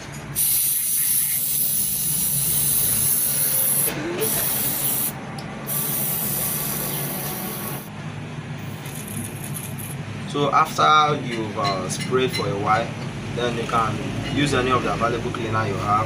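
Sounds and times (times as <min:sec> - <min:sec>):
aerosol spray can hissing: 0:00.4 - 0:07.9.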